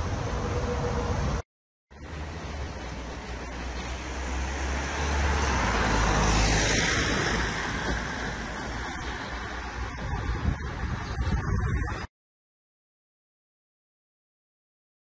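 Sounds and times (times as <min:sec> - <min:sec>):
vehicle passing by: 0:02.0 - 0:11.4.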